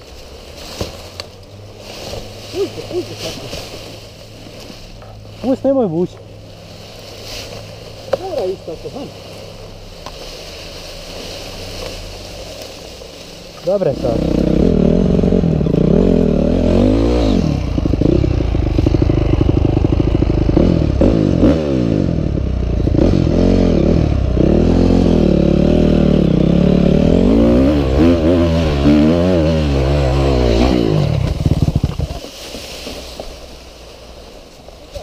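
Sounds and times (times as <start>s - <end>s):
dirt bike engine revving: 13.6s - 32.2s
engine knocking and stalling: 31.1s - 32.3s.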